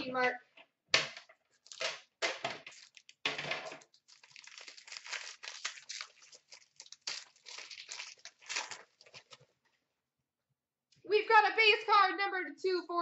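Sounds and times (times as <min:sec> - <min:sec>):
plastic wrapper crinkling: 0:01.6 - 0:09.5.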